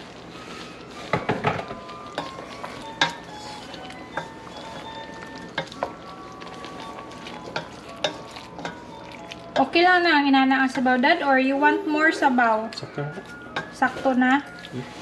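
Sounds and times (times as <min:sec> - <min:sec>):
wooden spatula scraping pot: 0:00.0 - 0:09.8
stew sizzling: 0:00.0 - 0:15.0.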